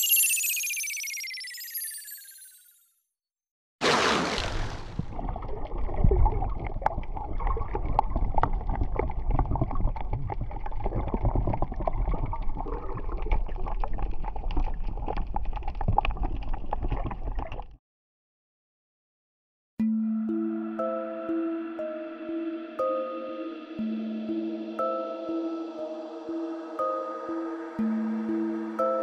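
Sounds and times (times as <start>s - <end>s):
muffled underwater wash: 4.4s - 17.7s
bubbling clicks and crackles: 4.4s - 17.8s.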